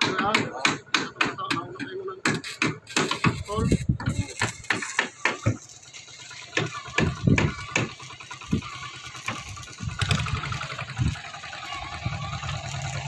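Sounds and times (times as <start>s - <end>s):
small boat engine humming: 5.7s - 13.0s
sharp knocks: 6.6s - 8.0s.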